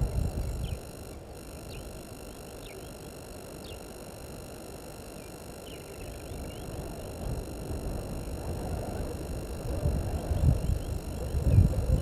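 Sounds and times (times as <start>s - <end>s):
faint electronic whine: 0.0s - 12.0s
faint bird chirps: 0.4s - 4.0s, 5.1s - 7.1s, 10.2s - 12.0s.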